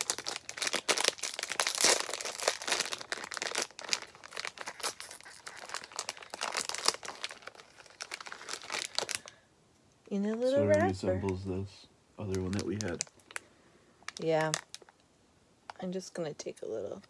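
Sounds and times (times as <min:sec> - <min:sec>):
plastic wrapper crinkling: 0:00.0 - 0:09.4, 0:12.2 - 0:15.1.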